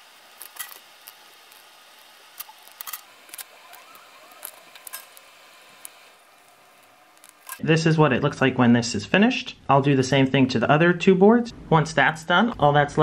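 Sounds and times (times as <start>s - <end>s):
small clicks of wire leads: 7.1s - 7.6s.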